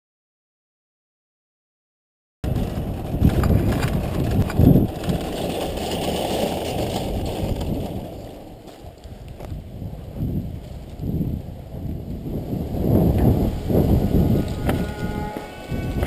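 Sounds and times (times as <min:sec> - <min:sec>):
wind rumble on microphone: 0:02.4 - 0:16.0
shopping cart rattling on asphalt: 0:02.5 - 0:09.3.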